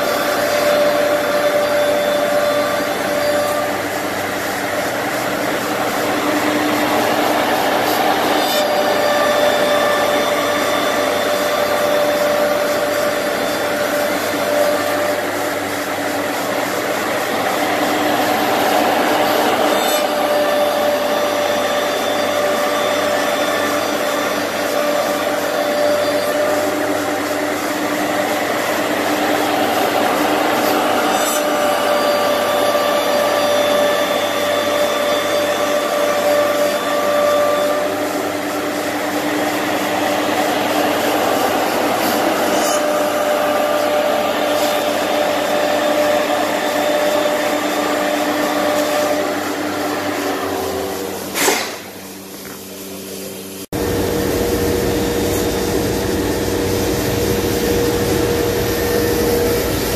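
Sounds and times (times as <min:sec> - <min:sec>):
router spindle whining: 0:00.0 - 0:51.3
saw blades cutting grooves: 0:00.0 - 0:52.0.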